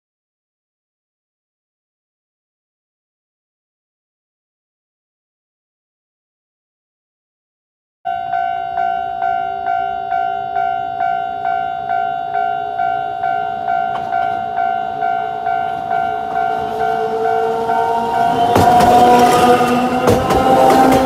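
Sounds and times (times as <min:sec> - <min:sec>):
electric train approaching: 0:08.1 - 0:21.0
level crossing warning bell: 0:08.1 - 0:21.0.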